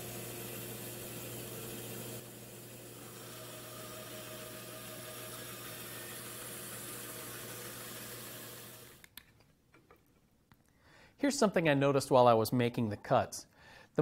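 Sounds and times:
band saw cutting wood: 0:00.0 - 0:09.0.

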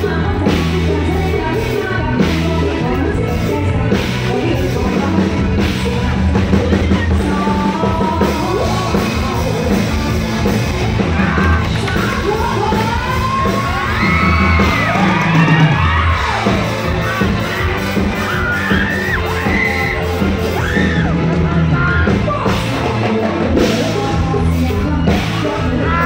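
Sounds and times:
live band playing loudly: 0:00.0 - 0:26.0
person singing: 0:00.0 - 0:26.0
crowd shouts and whoops: 0:10.8 - 0:22.5, 0:23.9 - 0:26.0.

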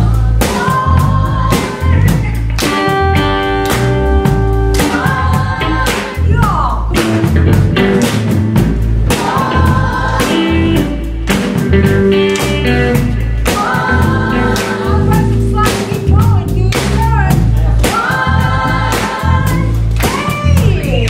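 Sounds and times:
woman singing lead: 0:00.0 - 0:03.5, 0:04.1 - 0:07.0, 0:09.1 - 0:11.1, 0:12.9 - 0:21.0
live rock band playing: 0:00.0 - 0:21.0.

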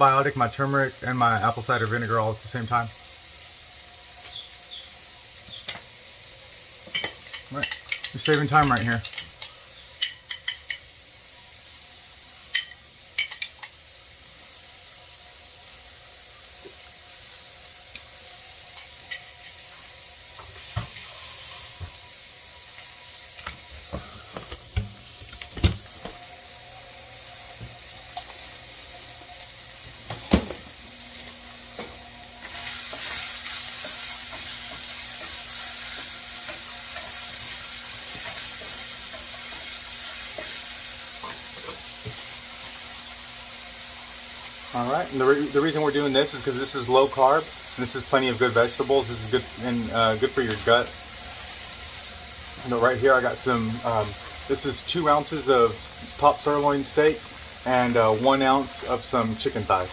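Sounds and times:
vegetables sizzling in a frying pan: 0:00.0 - 0:59.9
utensils clinking: 0:06.9 - 0:10.8, 0:12.5 - 0:13.8
spatula stirring vegetables: 0:27.4 - 0:43.2.

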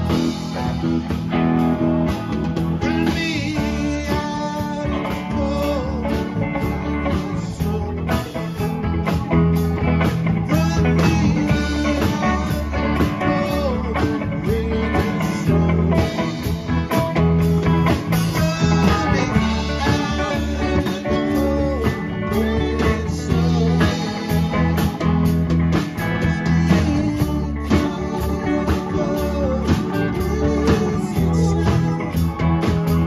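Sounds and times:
gliding electric guitar lead: 0:00.0 - 0:33.0
live rock band playing: 0:00.0 - 0:33.0.

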